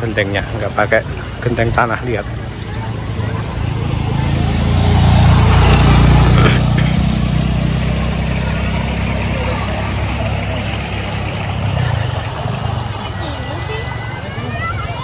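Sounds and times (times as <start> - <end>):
low engine hum: 0.0 - 15.0
motorcycle passing close by: 2.6 - 13.6.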